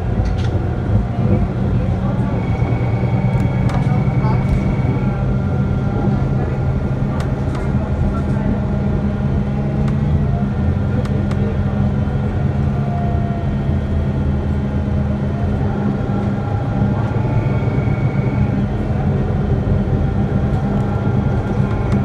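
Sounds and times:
bus engine drone: 0.0 - 22.0
faint whine: 1.2 - 8.6, 15.3 - 22.0.

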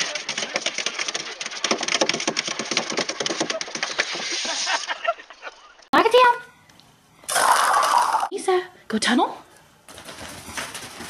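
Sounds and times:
puppy claws scrabbling on plastic: 0.0 - 4.0, 9.9 - 11.0.

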